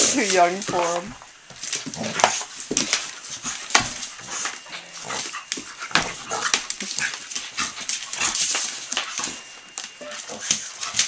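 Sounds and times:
dogs growling while playing: 0.0 - 8.9.

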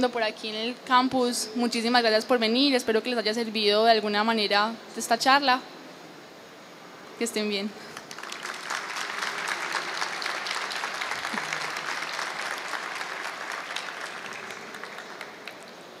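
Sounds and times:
audience applauding: 7.9 - 16.0.

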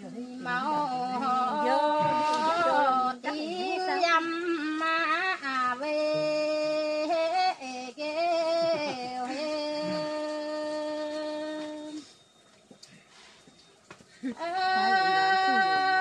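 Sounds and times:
woman singing unaccompanied: 0.0 - 12.2, 14.2 - 16.0.

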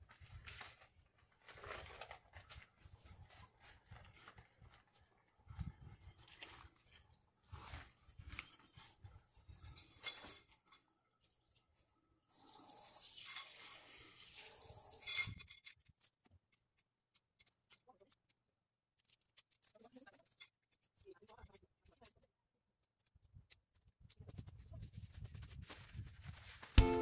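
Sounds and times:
mat unfolding rustle: 0.0 - 9.1, 25.2 - 27.0.

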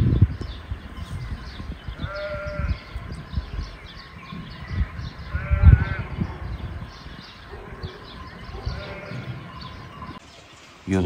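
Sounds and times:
sheep bleating: 2.0 - 3.0, 5.2 - 6.2, 8.6 - 9.6.

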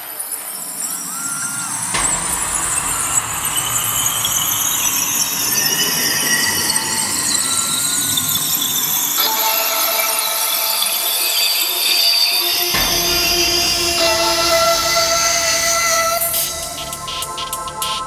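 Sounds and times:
hissing noise bed: 0.7 - 9.1.

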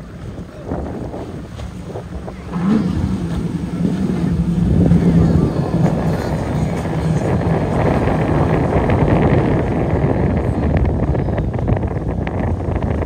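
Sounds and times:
powerboat engines droning: 0.0 - 13.0
rush of spray and wind: 0.0 - 13.0.

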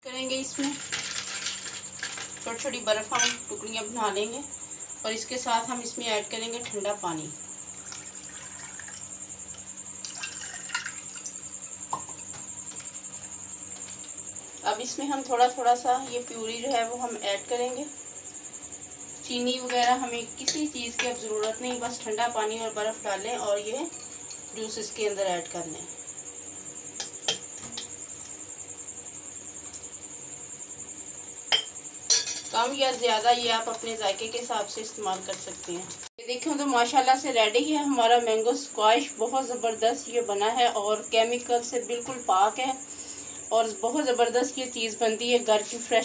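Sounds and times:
water pouring over ice: 7.8 - 9.1, 10.0 - 11.3.

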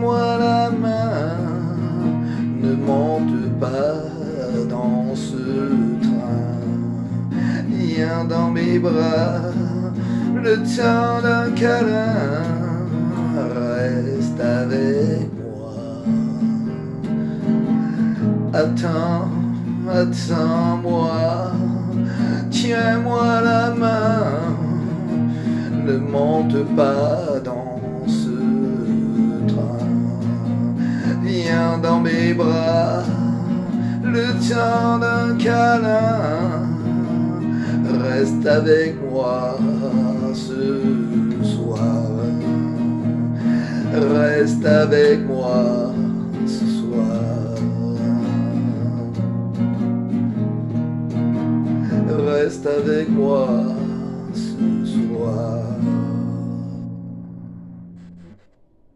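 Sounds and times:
man singing: 0.0 - 57.2
acoustic guitar strumming: 0.0 - 58.9.

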